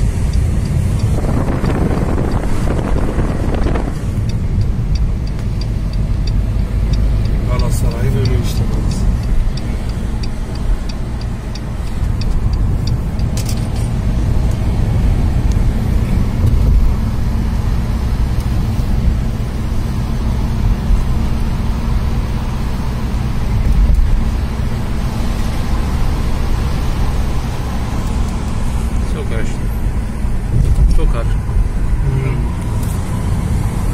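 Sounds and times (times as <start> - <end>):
light evenly spaced ticks: 0.0 - 2.5, 3.5 - 15.8
car road and engine rumble: 0.0 - 33.9.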